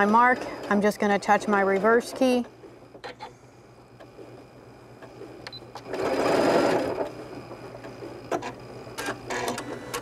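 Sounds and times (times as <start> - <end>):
sewing machine stitching: 5.8 - 7.1.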